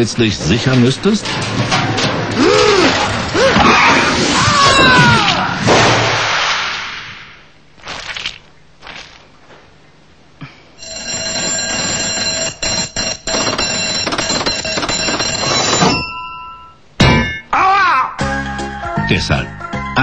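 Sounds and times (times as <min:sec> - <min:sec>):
bell ringing rapidly: 0:10.8 - 0:17.4.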